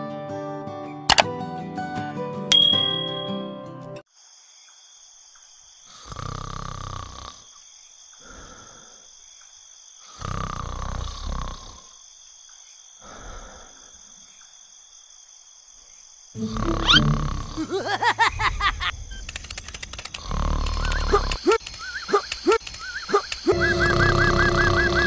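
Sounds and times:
loud snores: 0:05.9 - 0:07.5, 0:10.1 - 0:12.0, 0:16.4 - 0:17.7, 0:20.2 - 0:21.1
quiet breath out: 0:08.1 - 0:09.2, 0:13.0 - 0:14.3.

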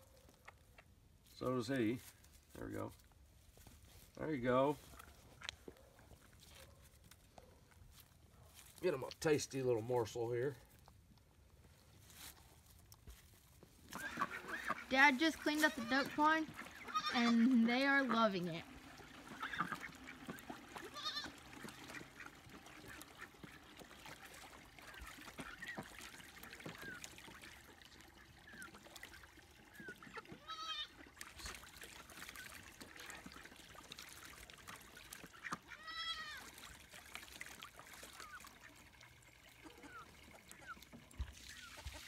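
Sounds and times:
ducks splashing in water: 0:13.2 - 0:42.0.

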